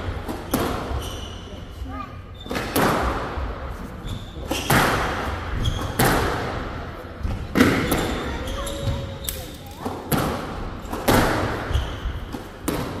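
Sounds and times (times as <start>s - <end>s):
squash ball hitting walls: 0.0s - 1.2s, 2.4s - 9.1s, 9.7s - 13.0s
shoe squeaks: 0.4s - 2.7s, 3.8s - 4.8s, 5.6s - 6.0s, 7.8s - 9.8s, 11.6s - 12.3s.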